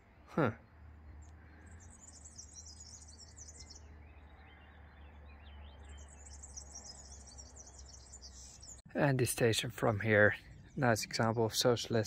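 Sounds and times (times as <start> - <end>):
songbird twittering: 0.4 - 8.9.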